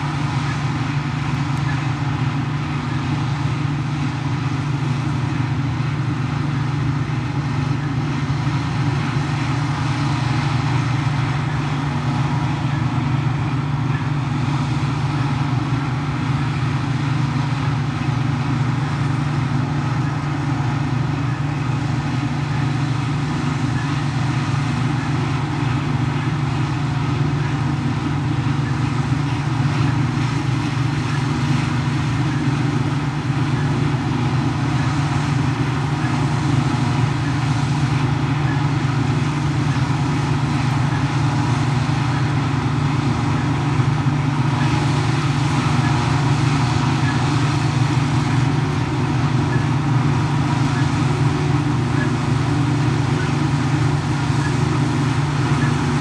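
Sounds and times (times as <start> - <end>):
forage harvester running: 0.0 - 56.0
tractor pulling trailer: 0.0 - 56.0.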